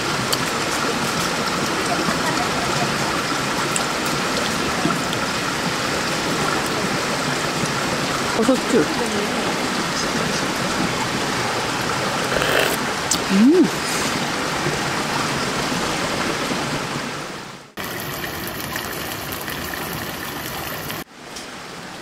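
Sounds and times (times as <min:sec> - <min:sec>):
mountain stream rushing: 0:00.0 - 0:22.0
person humming: 0:12.4 - 0:13.8.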